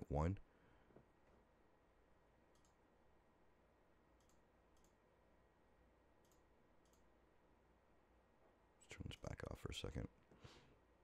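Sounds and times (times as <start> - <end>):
computer mouse clicks: 2.5 - 2.8, 4.2 - 5.0, 6.2 - 7.1.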